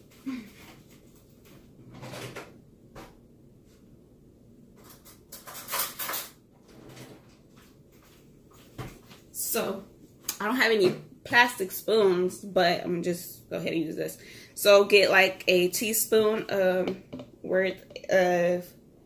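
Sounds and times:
utensils rattling in drawer: 4.8 - 7.1.

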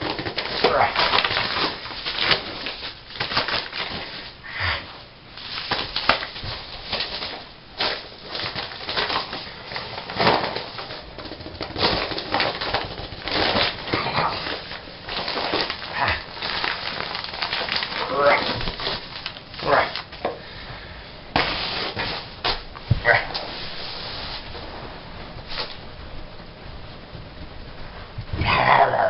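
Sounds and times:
plastic mailer crinkling: 0.0 - 4.4, 5.3 - 20.6, 21.3 - 24.7.

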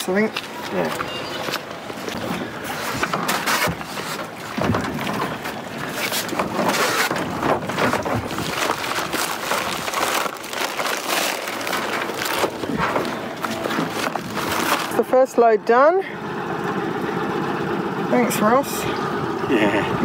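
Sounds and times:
knocks and splashes: 0.0 - 15.2
steady rush of boat noise: 0.0 - 20.0
wind buffeting microphone: 4.3 - 10.0.

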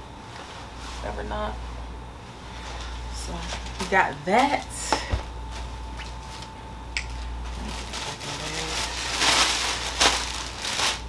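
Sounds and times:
packaging rustling and crinkling: 7.1 - 11.0.

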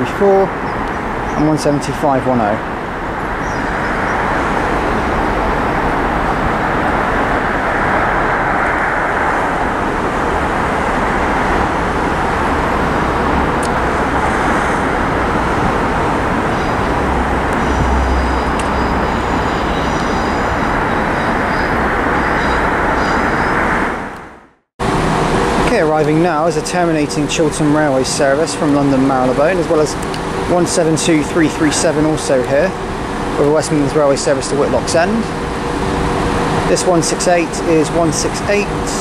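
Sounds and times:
train engine and wheel noise: 0.0 - 39.0.

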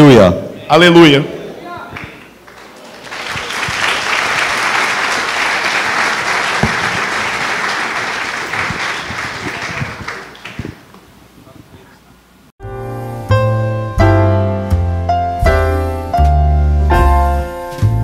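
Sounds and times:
audience applauding: 1.9 - 10.9.

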